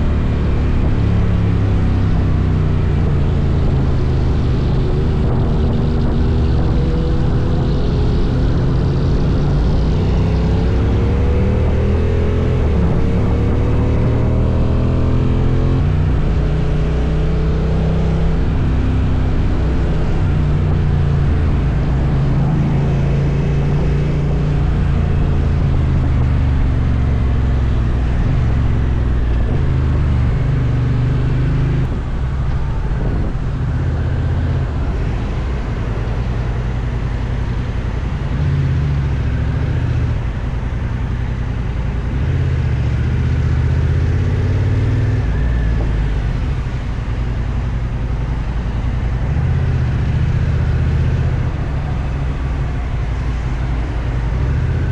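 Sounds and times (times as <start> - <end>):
motorcycle engine accelerating: 0.0 - 54.9.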